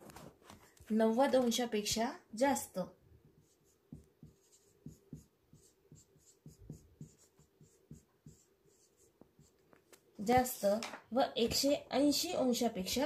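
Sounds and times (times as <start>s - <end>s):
marker writing on whiteboard: 3.2s - 10.8s, 11.4s - 11.9s.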